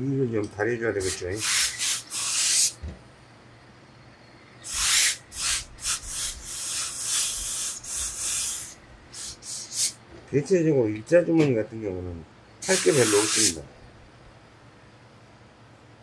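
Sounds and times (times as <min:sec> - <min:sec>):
steam iron hissing: 0:01.0 - 0:02.8, 0:04.6 - 0:10.0, 0:12.6 - 0:13.6
iron rubbing over cloth: 0:12.6 - 0:13.6.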